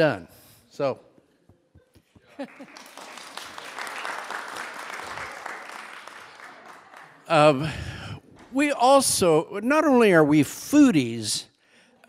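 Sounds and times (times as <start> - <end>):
people applauding: 2.2 - 7.7.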